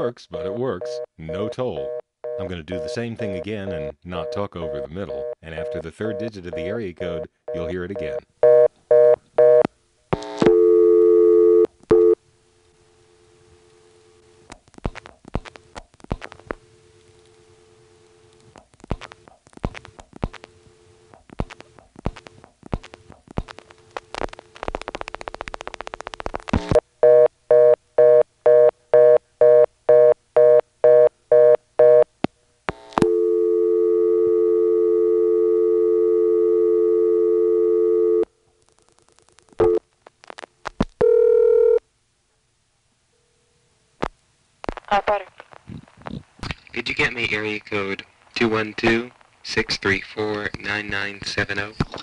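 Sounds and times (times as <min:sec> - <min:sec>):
pulsing telephone tone: 0:00.4 - 0:09.6, 0:33.0 - 0:38.2
steady telephone tone: 0:00.4 - 0:09.6, 0:10.3 - 0:12.2, 0:33.0 - 0:38.3, 0:41.0 - 0:41.8
dense crackling: 0:14.4 - 0:26.8, 0:38.6 - 0:41.0
telephone dial tone: 0:33.0 - 0:38.3, 0:41.0 - 0:41.8.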